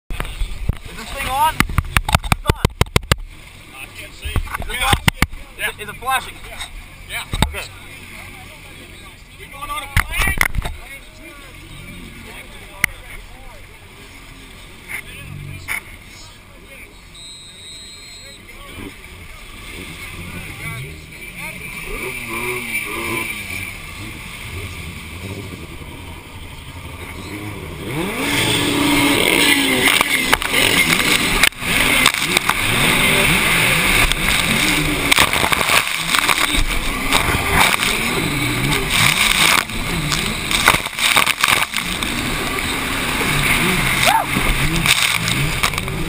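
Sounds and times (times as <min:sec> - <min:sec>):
jet ski engines: 0:00.1 - 0:46.0
hull slapping water: 0:27.9 - 0:46.0.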